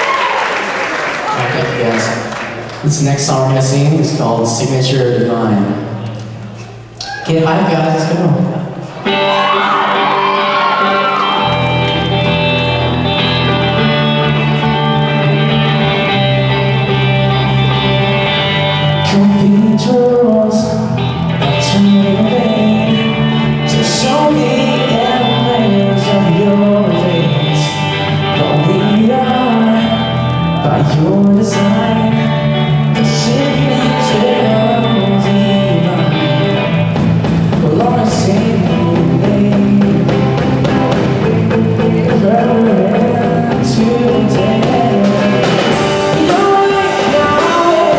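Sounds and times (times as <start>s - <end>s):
rock band playing: 8.0s - 47.9s
man singing: 18.6s - 47.9s.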